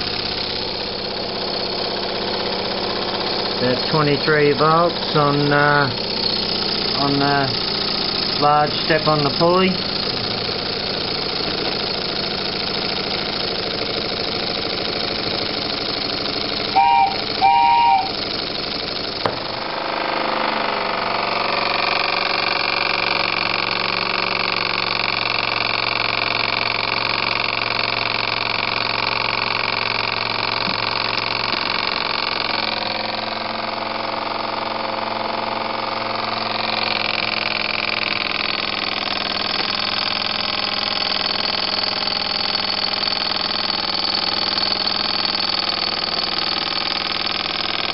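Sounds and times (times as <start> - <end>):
steam engine chuffing: 0.0 - 19.9, 21.0 - 47.9
pitched toots: 16.7 - 18.2.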